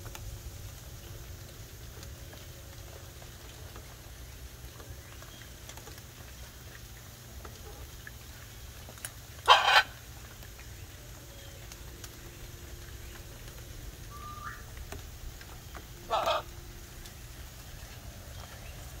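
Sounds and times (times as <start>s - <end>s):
macaw squawk: 9.5s - 9.9s, 14.1s - 14.7s, 16.1s - 16.5s.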